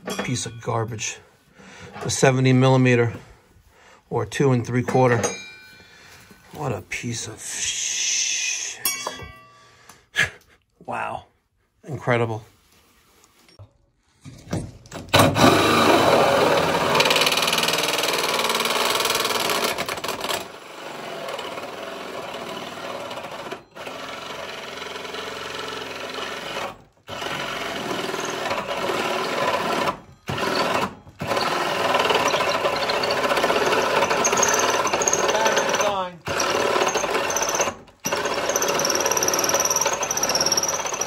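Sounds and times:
drill hole saw cutting wood: 15.2s - 41.0s.

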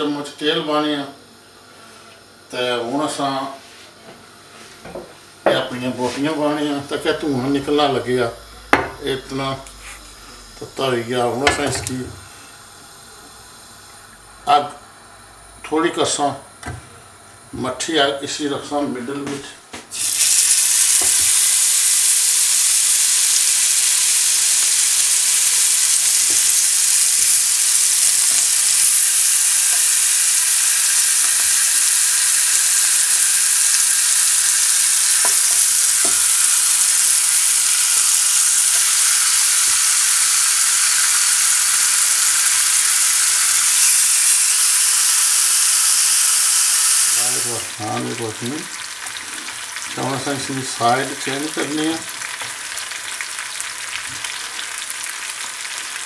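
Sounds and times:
ribs sizzling in hot oil: 19.9s - 56.0s.

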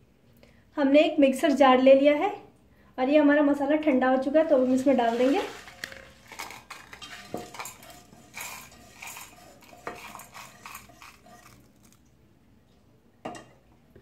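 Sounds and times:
spices scraping in pan: 4.3s - 12.1s
spices rattling into metal jar: 5.1s - 12.0s.

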